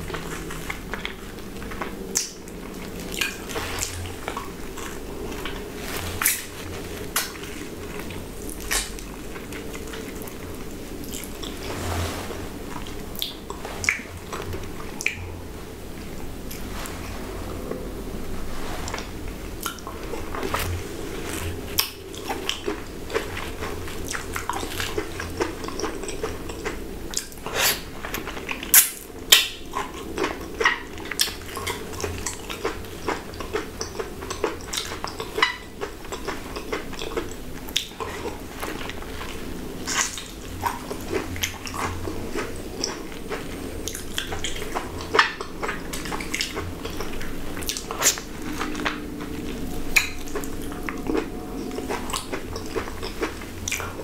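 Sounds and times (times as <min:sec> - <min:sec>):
wet eating smacks and squelches: 0:18.9 - 0:54.0.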